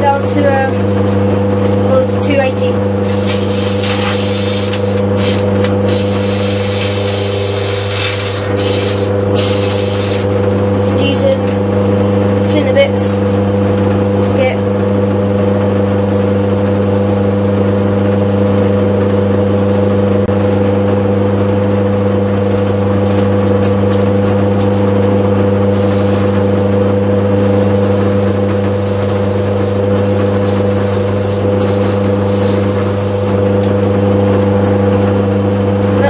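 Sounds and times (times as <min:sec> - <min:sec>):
drill motor running: 0:02.9 - 0:10.9, 0:25.6 - 0:33.7
sandpaper hissing on turning wood: 0:03.0 - 0:10.4, 0:25.7 - 0:26.4, 0:27.4 - 0:33.4.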